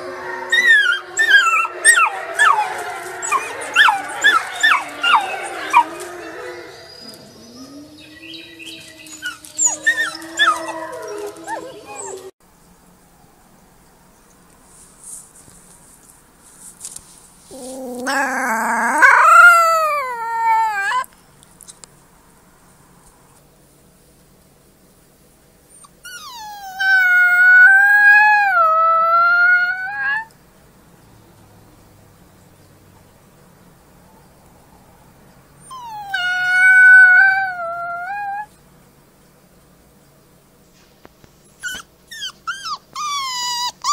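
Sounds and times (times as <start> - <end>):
wolf pup long low howl: 0.0 - 12.3, 17.5 - 21.1, 26.1 - 30.3, 35.6 - 38.5
wolf pups short howls and yips: 8.6 - 12.3, 17.5 - 21.0, 25.8 - 30.3, 35.6 - 38.5, 41.6 - 43.9.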